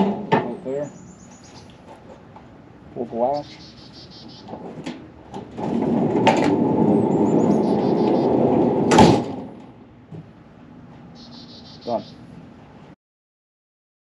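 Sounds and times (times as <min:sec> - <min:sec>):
loud metal clunk: 0:00.0 - 0:00.7, 0:04.3 - 0:10.4
tool box rolling on metal track: 0:04.3 - 0:10.0.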